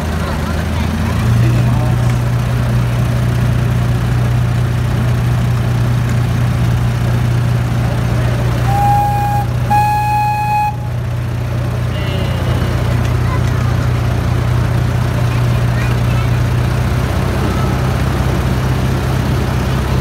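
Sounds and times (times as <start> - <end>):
miniature train humming: 0.0 - 18.4
train whistle toots: 8.6 - 11.1.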